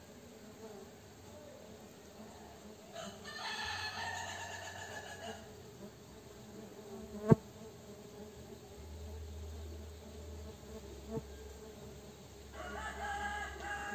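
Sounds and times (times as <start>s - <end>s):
bees buzzing: 4.8s - 13.9s.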